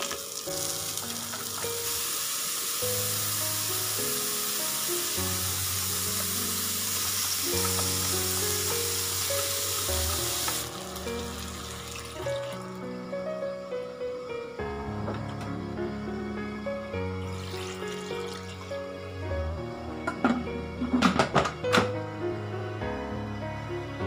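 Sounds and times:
food sizzling in oil: 0.0 - 12.8, 17.3 - 18.9
background music: 0.0 - 24.0.

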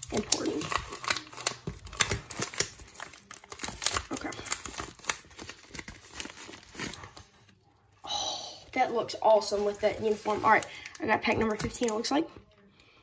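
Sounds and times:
plastic mailer crinkling: 0.0 - 7.5, 9.3 - 12.1.

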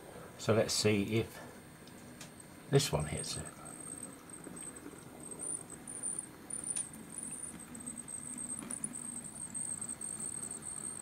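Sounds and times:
small electric motor hum: 2.4 - 11.0.

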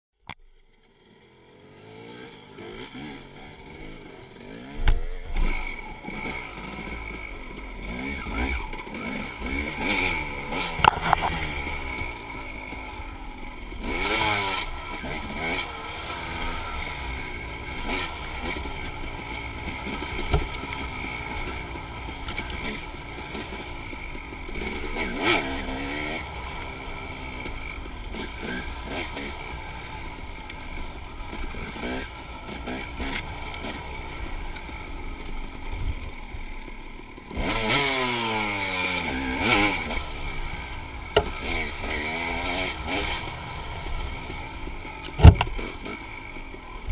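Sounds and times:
dirt bike engine revving: 0.8 - 46.9
bike knocking on rough ground: 20.0 - 20.9, 41.1 - 41.7, 45.1 - 45.7.

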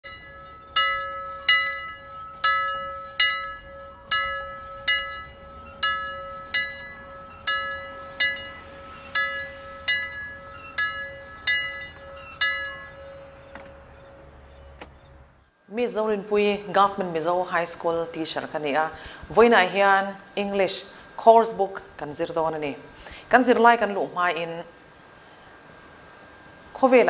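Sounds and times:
bell-like chime notes: 0.0 - 13.4
steady held tone: 0.0 - 22.8.

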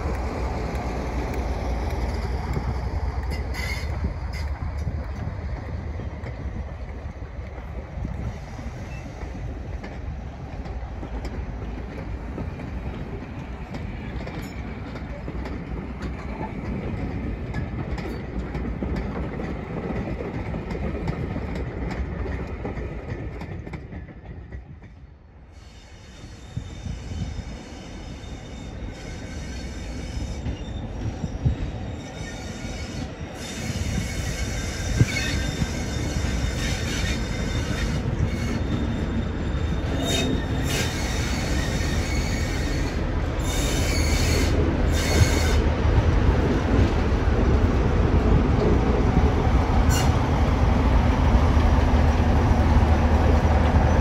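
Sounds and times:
train rumbling on rails: 0.0 - 54.0
high wheel squeal: 3.3 - 4.6, 25.6 - 45.6, 49.9 - 50.2.

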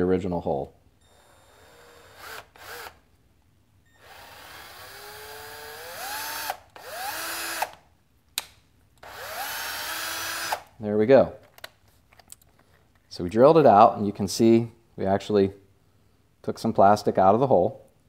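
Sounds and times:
cordless drill motor whine: 1.0 - 3.0, 3.9 - 7.8, 9.0 - 10.6.

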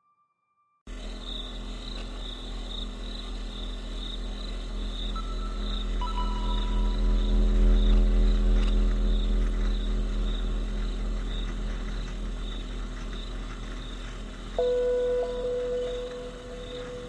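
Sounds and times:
low drone: 0.9 - 17.0
held synth note: 5.2 - 12.4, 14.6 - 17.0
soft high pulse: 5.2 - 12.4, 14.6 - 17.0.

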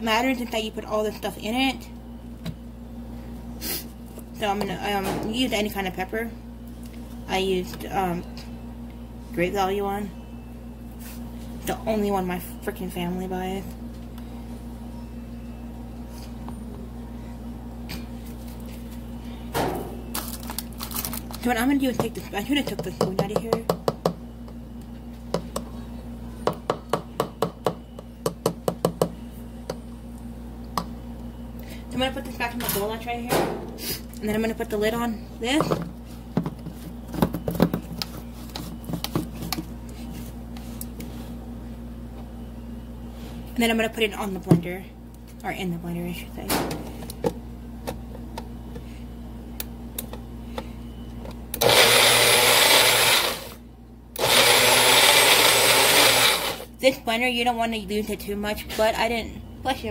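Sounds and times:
steady low hum: 0.0 - 59.9
blender blending: 51.6 - 53.6, 54.2 - 56.7.

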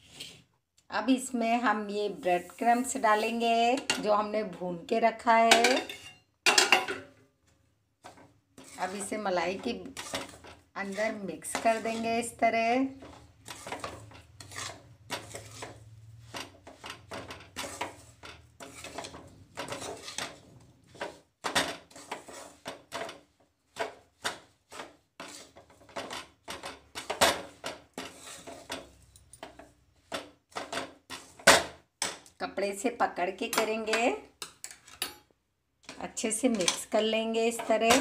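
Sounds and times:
steel spatula scraping a pan: 0.0 - 0.5, 2.0 - 4.2, 8.0 - 31.5, 35.8 - 38.0.

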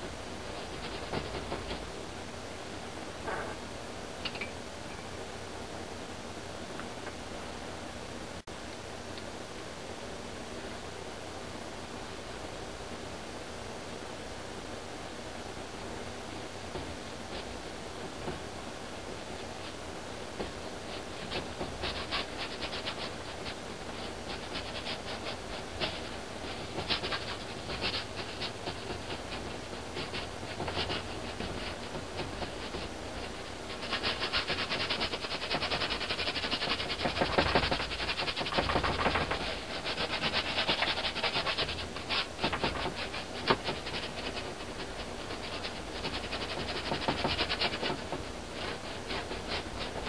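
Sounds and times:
paintbrush strokes on canvas: 20.4 - 50.0.

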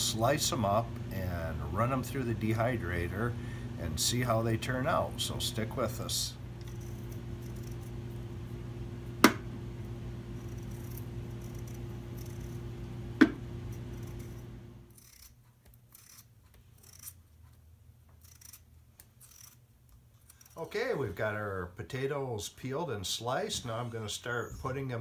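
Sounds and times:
steady low hum: 0.0 - 25.0
knife scraping and cutting potatoes: 6.6 - 8.0, 10.3 - 12.7, 13.6 - 21.2.

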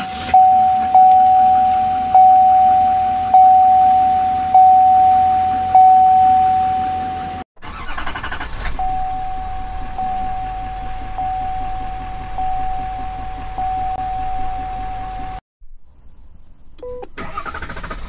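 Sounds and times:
truck warning chime dinging: 0.4 - 15.4
diesel engine idling: 0.4 - 18.0
starter cranking: 7.6 - 9.2.

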